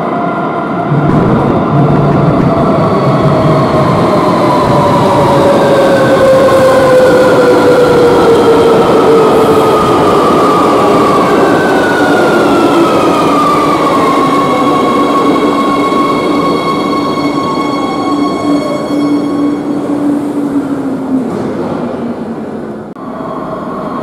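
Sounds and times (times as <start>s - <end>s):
wheels rumbling on rail: 0.0s - 24.0s.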